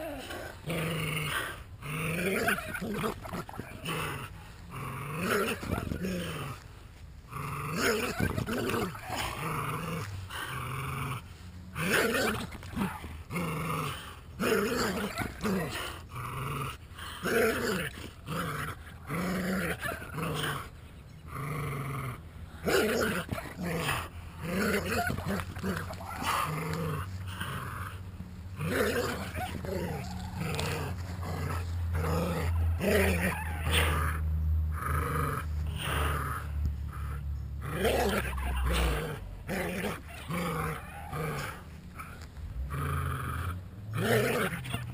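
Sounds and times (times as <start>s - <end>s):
dogs growling in play: 0.0s - 44.9s.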